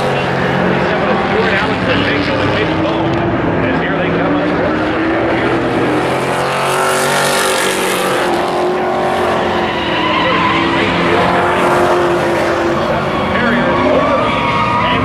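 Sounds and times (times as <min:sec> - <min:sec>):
race truck engines passing: 0:00.0 - 0:15.0.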